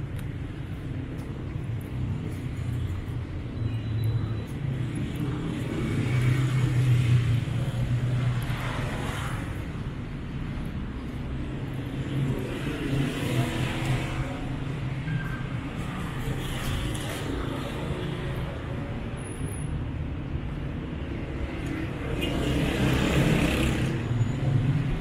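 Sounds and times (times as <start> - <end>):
vehicles driving past: 0.0 - 25.0.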